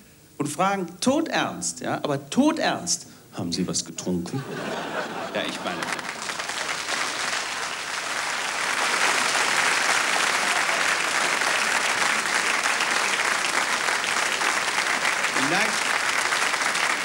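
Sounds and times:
audience applauding: 5.2s - 17.0s.

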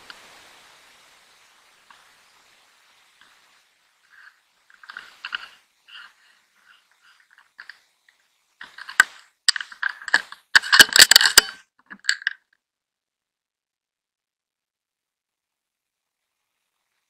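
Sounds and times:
rifle handling clicks and knocks: 4.1s - 12.5s.

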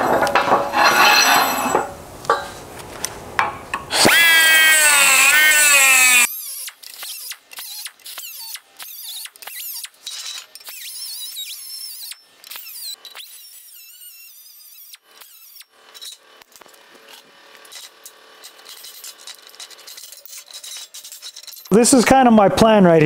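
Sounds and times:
cut-off tool high whine: 3.9s - 22.2s.

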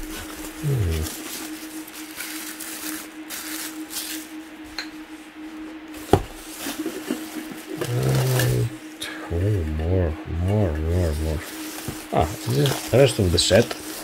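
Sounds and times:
rustling of wrapped china: 0.0s - 4.6s, 6.0s - 9.1s, 10.9s - 14.0s
faint steady hum: 0.0s - 14.0s.

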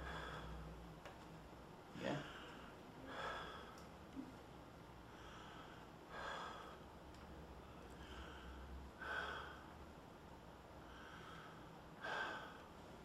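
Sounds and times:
man breathing deeply: 0.0s - 0.7s, 2.2s - 3.8s, 5.0s - 9.9s, 10.7s - 13.0s.

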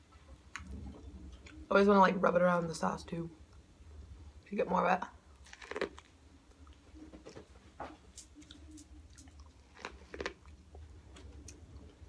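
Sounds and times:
low steady hum: 0.0s - 12.0s
person chewing corn: 5.4s - 12.0s.

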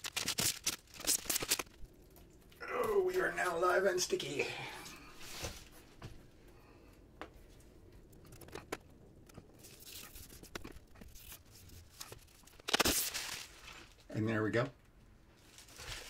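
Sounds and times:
plastic sheet clicks and scrapes: 0.0s - 1.9s, 8.1s - 13.5s.

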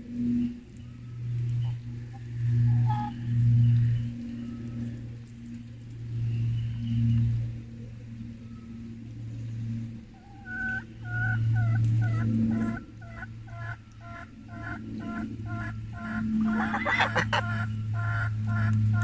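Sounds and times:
low rumble: 0.0s - 19.0s
poultry calling: 1.5s - 4.9s, 10.1s - 19.0s.

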